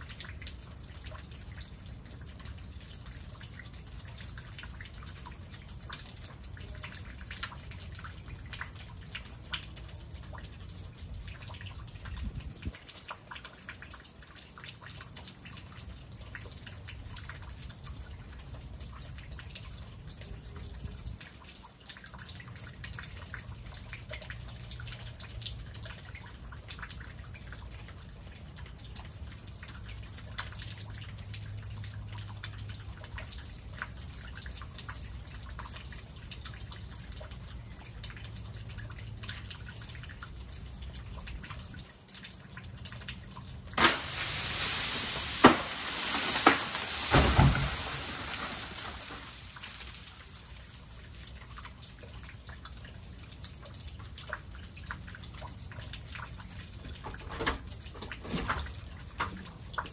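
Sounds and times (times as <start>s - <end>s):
meltwater dripping: 0.0s - 59.9s
ice-laden tree limb breaking: 43.8s - 50.1s
falling branch crashing hiss: 43.8s - 50.3s.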